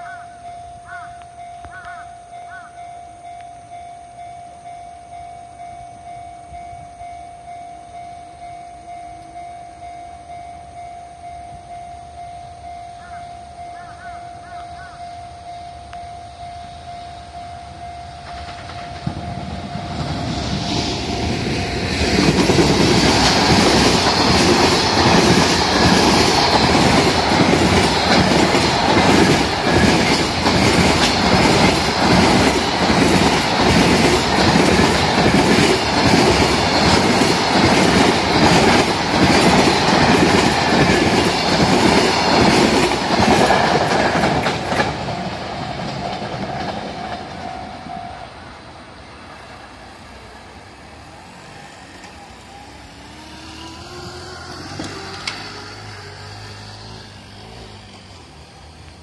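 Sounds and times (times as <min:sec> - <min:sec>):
level crossing warning bell: 0:00.0 - 0:20.3
freight train passing: 0:00.0 - 0:59.0
train wheels clattering on rail joints: 0:18.2 - 0:48.0, 0:53.8 - 0:59.0.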